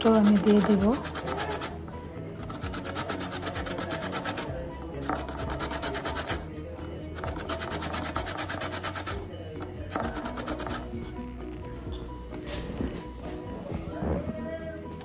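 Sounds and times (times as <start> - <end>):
orange peel grated on metal grater: 0.0 - 1.8, 2.4 - 6.4, 7.2 - 9.2.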